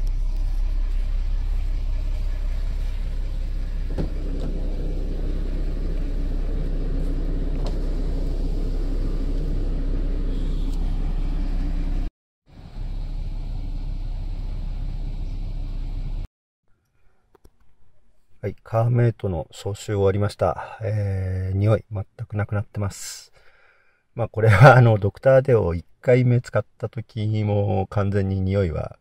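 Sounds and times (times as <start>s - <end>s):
air conditioning fan: 0.0s - 13.8s
car engine idling: 0.0s - 16.3s.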